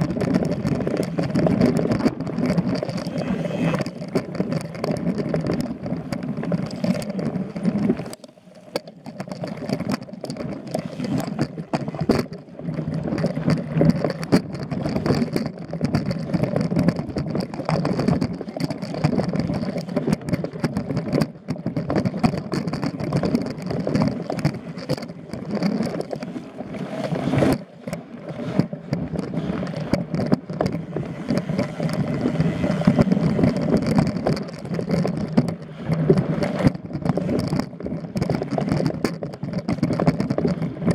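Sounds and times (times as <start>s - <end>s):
wind on microphone: 0.0s - 8.2s, 9.1s - 40.9s
bike tyres rolling over stones: 0.0s - 40.9s
bike knocks and rattles: 8.8s - 26.3s, 27.4s - 40.9s.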